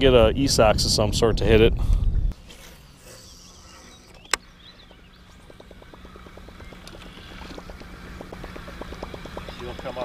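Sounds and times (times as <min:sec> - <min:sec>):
steady low hum: 0:02.0 - 0:10.0
fishing reel ticking: 0:02.9 - 0:10.0.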